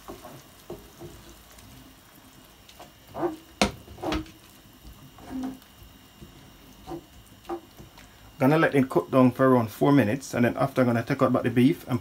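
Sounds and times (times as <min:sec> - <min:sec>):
liquid sloshing in a pan: 0:00.0 - 0:08.4
wooden spoon knocking a pan: 0:02.8 - 0:04.4, 0:06.9 - 0:07.9.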